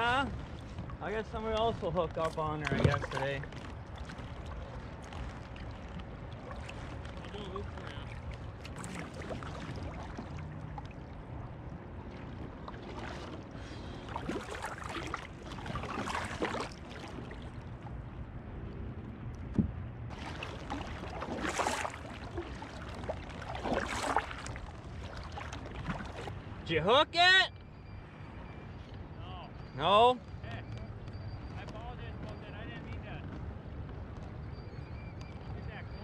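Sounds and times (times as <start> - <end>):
kayak paddle splashing: 0.0 - 18.4, 19.4 - 26.6.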